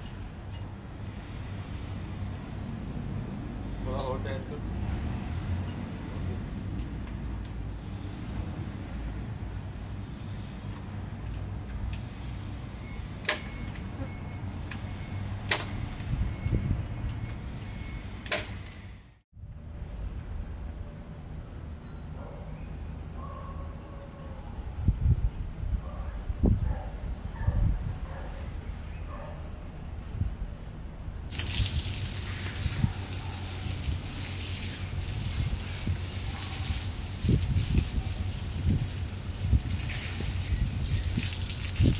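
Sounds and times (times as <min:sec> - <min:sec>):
water gushing: 0:31.3 - 0:41.9.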